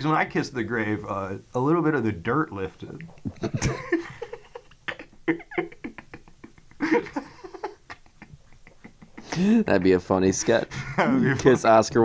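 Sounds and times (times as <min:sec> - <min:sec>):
people laughing: 0:03.2 - 0:11.9.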